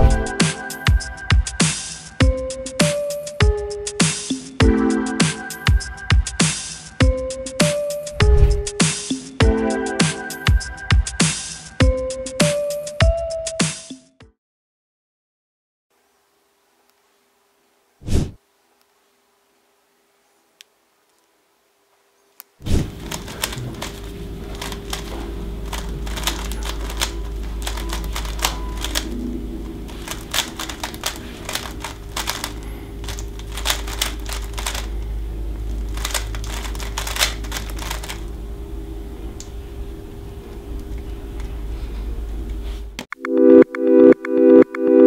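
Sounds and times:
steady low hum: 0:22.8 - 0:43.0
speed cube clicking: 0:23.0 - 0:29.1, 0:29.9 - 0:34.9, 0:35.7 - 0:38.2.

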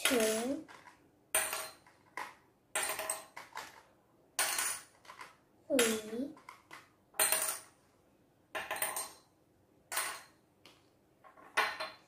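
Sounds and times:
child speaking: 0:00.0 - 0:00.7, 0:05.7 - 0:06.4.

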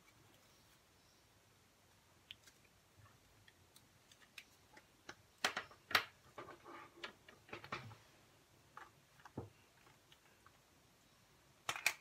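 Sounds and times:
marker and paper clicks and taps: 0:03.4 - 0:06.4.

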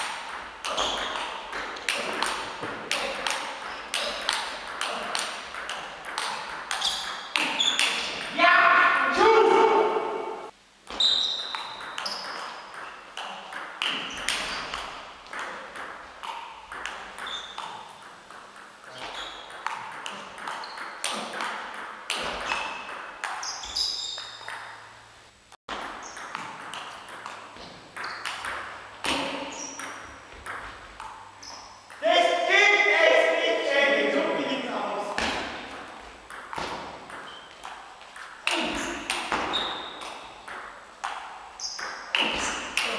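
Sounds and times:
table tennis ball clicks: 0:25.7 - 0:32.0.

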